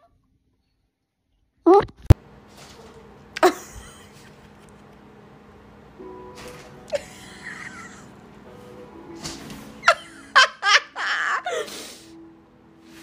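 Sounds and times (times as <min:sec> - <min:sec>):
person laughing: 0:03.4 - 0:04.8, 0:06.9 - 0:08.2, 0:09.8 - 0:12.0.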